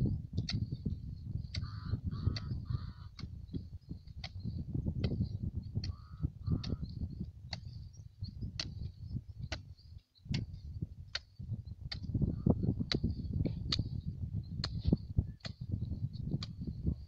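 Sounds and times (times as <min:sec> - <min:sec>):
sharp ticks: 0:04.1 - 0:05.2, 0:11.1 - 0:11.3.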